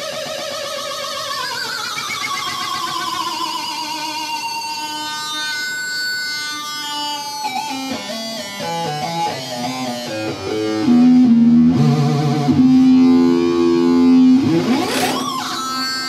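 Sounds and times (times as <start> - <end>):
synthesizer notes: 14.0 - 16.0
synthesizer rising sweep: 14.4 - 16.0.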